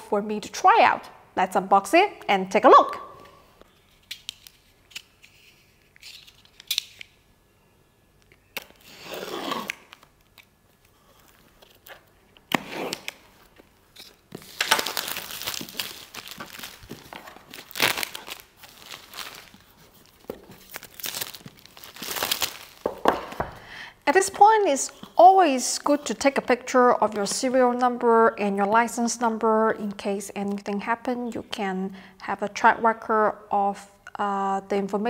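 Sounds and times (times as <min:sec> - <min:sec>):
plastic shrink wrap crinkling: 0:08.6 - 0:23.4.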